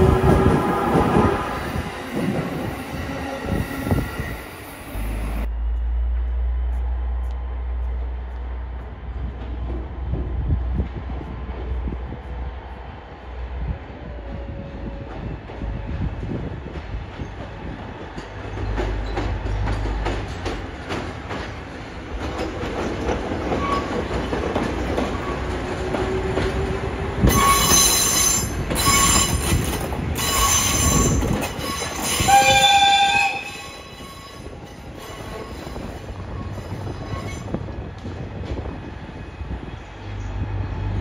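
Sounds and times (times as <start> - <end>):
diesel locomotive engine rumble: 0.0 - 41.0
train wheels screeching: 23.0 - 37.6
train horn blast: 30.2 - 34.5.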